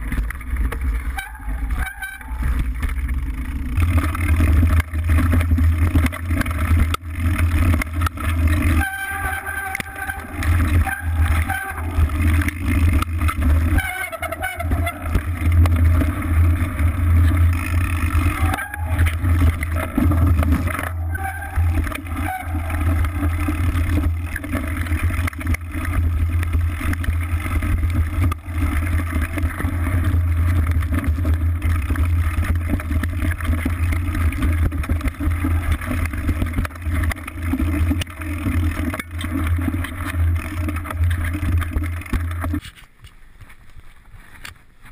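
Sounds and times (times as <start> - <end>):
bike knocking and rattling: 0.0 - 44.9
wind and tyre rumble: 0.0 - 44.9.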